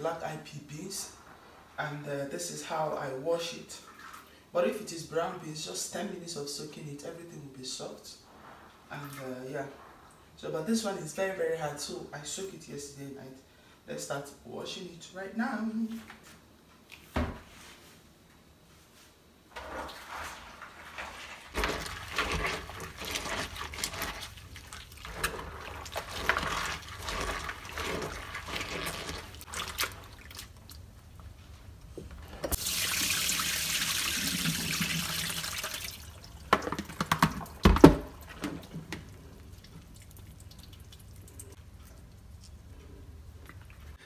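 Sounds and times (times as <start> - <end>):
peas sloshing in water by hand: 19.5 - 31.0
running water: 19.5 - 31.0, 32.3 - 42.7
basin and colander knocking: 36.5 - 39.1.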